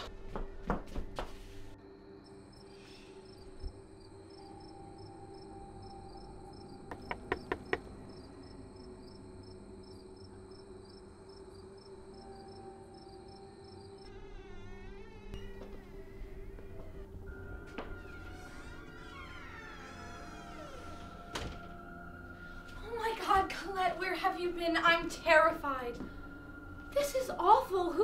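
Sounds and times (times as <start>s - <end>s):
crickets chirping: 1.8s - 14.2s, 15.4s - 28.0s
knocks on a door: 6.9s - 7.9s.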